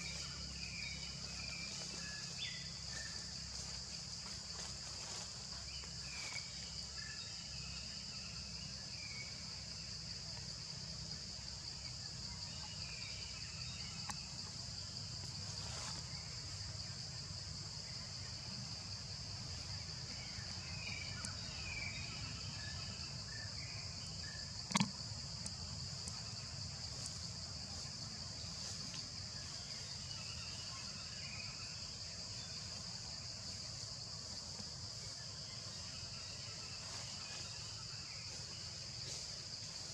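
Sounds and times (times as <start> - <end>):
faint chirps: 0.0 - 10.8, 11.5 - 39.9
insect chorus drone: 0.0 - 39.9.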